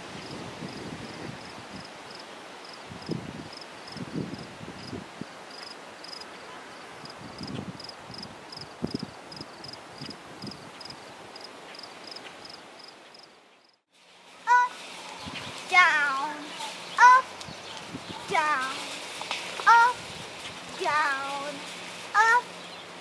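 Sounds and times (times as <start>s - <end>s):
wind on microphone: 0.0s - 2.2s, 2.8s - 5.5s, 6.9s - 11.3s, 15.1s - 21.6s
wind in grass: 0.0s - 23.0s
insect chirping: 0.2s - 13.8s.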